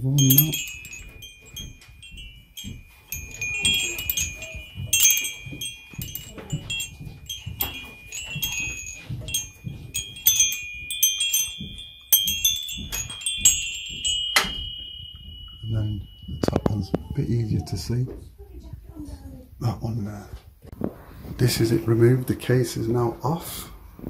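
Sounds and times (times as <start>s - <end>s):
hands rustling and bumping: 0.0s - 17.2s
metal wind chime jangling: 0.0s - 18.0s.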